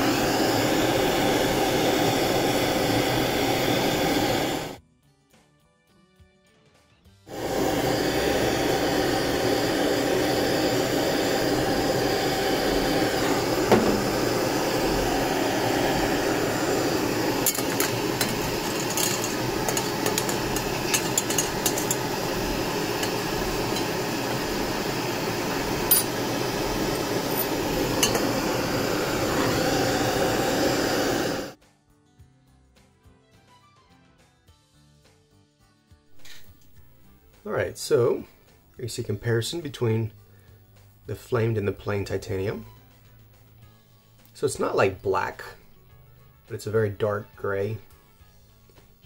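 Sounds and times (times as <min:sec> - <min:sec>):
torch flame hissing: 0:00.0 - 0:04.8, 0:07.3 - 0:31.6, 0:36.1 - 0:38.2.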